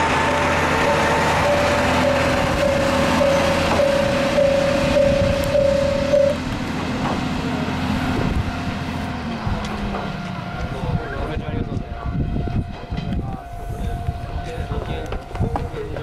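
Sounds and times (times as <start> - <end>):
diesel railcar engine drone: 0.0 - 16.0
level crossing bell ringing: 0.8 - 6.4.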